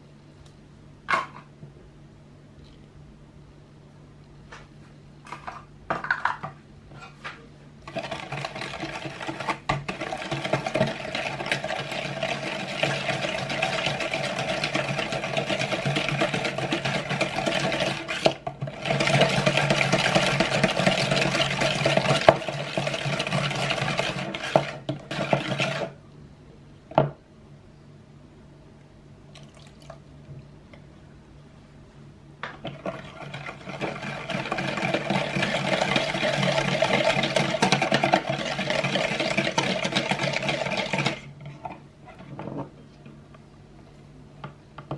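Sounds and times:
wire whisk beating in plastic bowl: 7.8 - 26.0, 32.6 - 41.3.

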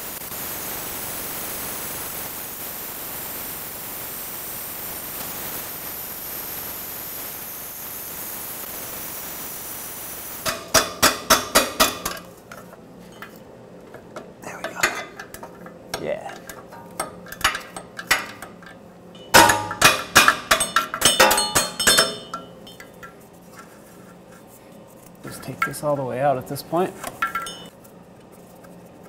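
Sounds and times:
torch flame hissing: 0.0 - 10.5
light metal clinks: 27.2 - 27.7.

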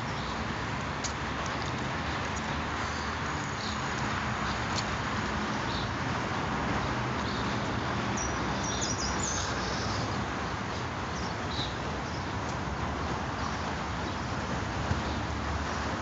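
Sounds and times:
outdoor background noise: 0.0 - 16.0.

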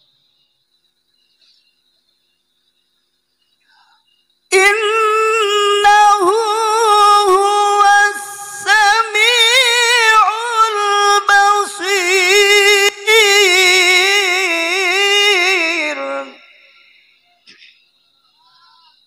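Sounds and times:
man chanting melodically: 4.5 - 16.9.

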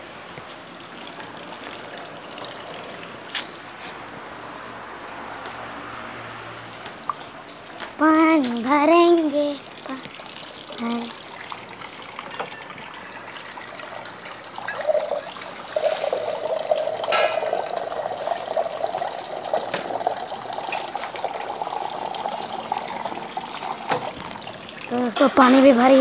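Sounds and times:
water pouring into metal pot: 0.7 - 3.3, 9.6 - 25.2.

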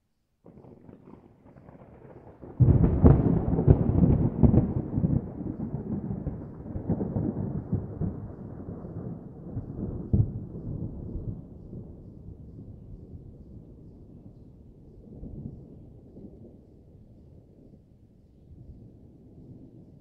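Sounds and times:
thunder rumbling and clapping: 0.5 - 14.2.

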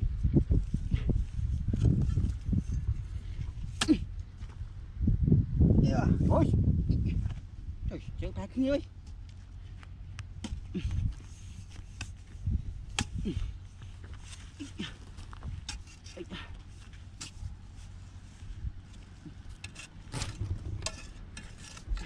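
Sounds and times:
low rumble: 0.0 - 15.8, 16.5 - 22.0
hoe striking dry soil: 3.6 - 4.6, 10.3 - 22.0.

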